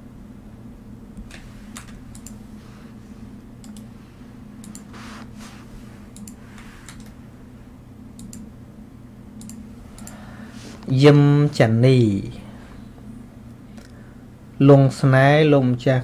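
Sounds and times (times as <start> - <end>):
steady low hum: 0.0 - 16.0
sharp clicks: 1.2 - 2.4, 3.6 - 3.9, 4.6 - 4.9, 6.1 - 7.2, 8.2 - 8.5, 9.4 - 10.2.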